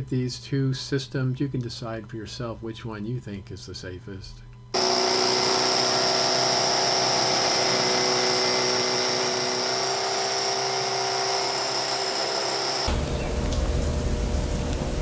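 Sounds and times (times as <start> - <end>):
power drill boring into concrete: 4.8 - 13.0.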